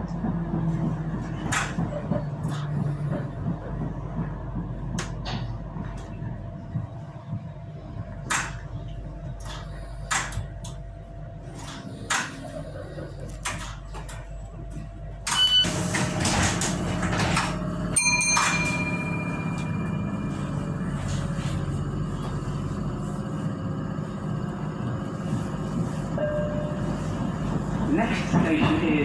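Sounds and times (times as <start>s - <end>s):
train hum: 0.0s - 29.0s
sliding doors rushing: 15.6s - 17.9s.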